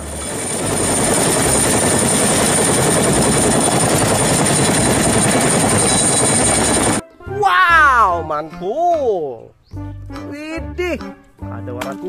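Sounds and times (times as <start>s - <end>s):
helicopter high whine: 0.0s - 7.0s
helicopter rotor beat: 0.0s - 7.0s.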